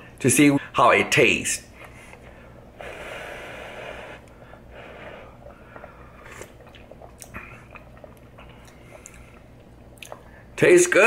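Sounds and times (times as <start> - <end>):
broth slurped from a ladle: 2.8 - 9.6
wet mouth clicks and lip smacks: 5.8 - 10.3.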